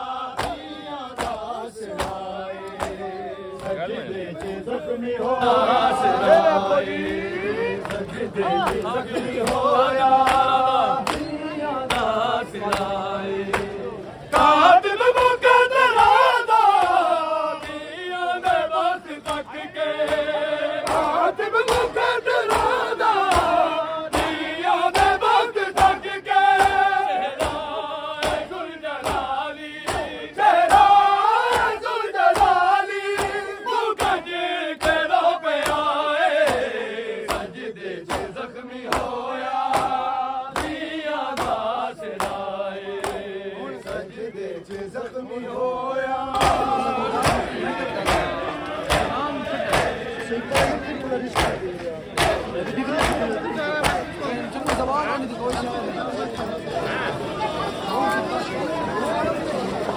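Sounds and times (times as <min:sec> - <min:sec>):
men chanting in unison: 0:00.0 - 0:59.9
rhythmic chest beating strikes: 0:20.0 - 0:43.3, 0:46.3 - 0:55.7.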